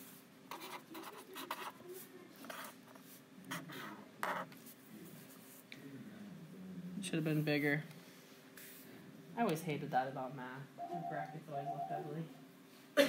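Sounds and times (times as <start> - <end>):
pen writing on paper: 0.5 - 1.7.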